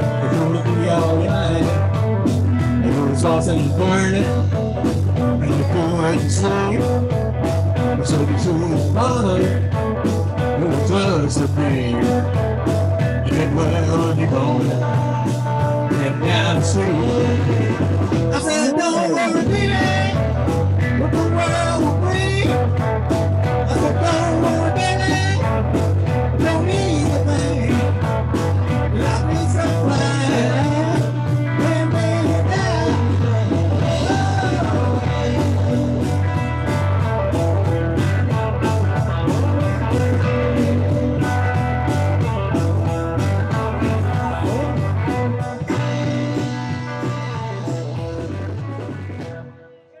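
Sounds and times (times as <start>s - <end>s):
drum kit beat: 0.0s - 49.6s
bass guitar: 0.0s - 50.0s
electric guitar: 0.0s - 50.0s.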